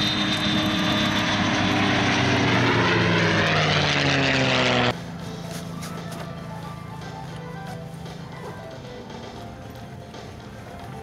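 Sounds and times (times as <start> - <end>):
jet engine passing: 0.0 - 6.9.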